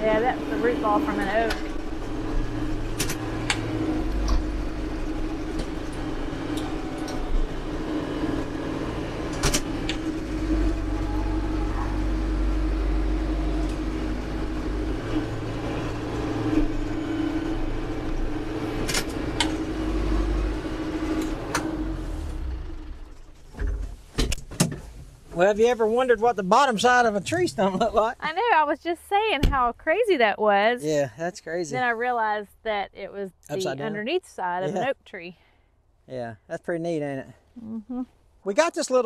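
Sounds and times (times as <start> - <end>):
tractor diesel engine running: 0.0 - 24.1, 25.3 - 30.8.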